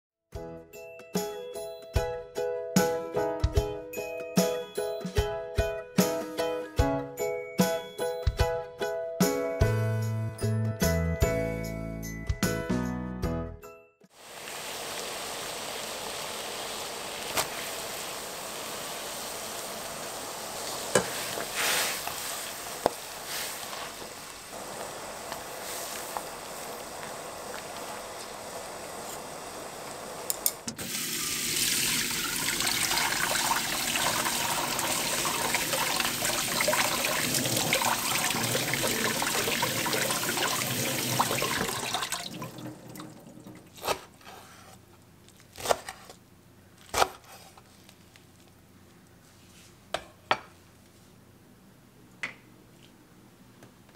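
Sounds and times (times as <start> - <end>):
water boiling in a pan: 14.1 - 43.8
tap water pouring into sink: 30.8 - 43.7.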